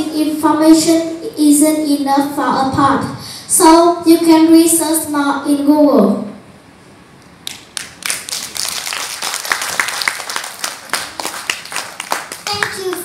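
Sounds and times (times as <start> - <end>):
audience applause: 7.8 - 13.0.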